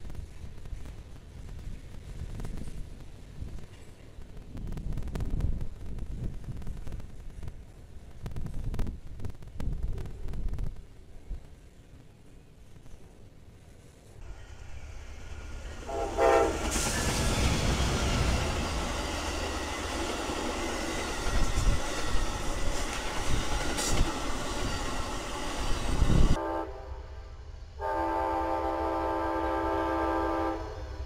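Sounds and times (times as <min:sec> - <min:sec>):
train wheels roaring on rails: 0:00.0 - 0:31.0
locomotive horn chord: 0:15.8 - 0:16.8, 0:26.4 - 0:31.0
train horn blast: 0:15.8 - 0:16.9, 0:26.1 - 0:31.0.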